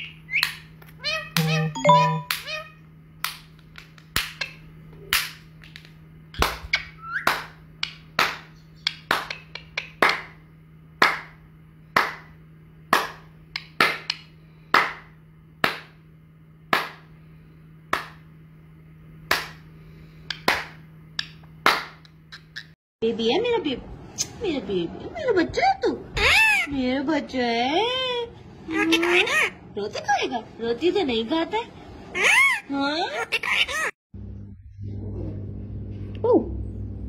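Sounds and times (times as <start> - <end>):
steady low hum: 0.0 - 37.0
parakeet clicking: 8.8 - 10.0.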